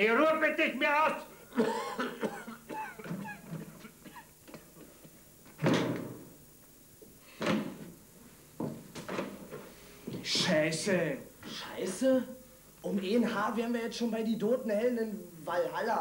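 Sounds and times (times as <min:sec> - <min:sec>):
heavy wooden door thud: 0:05.6 - 0:06.2.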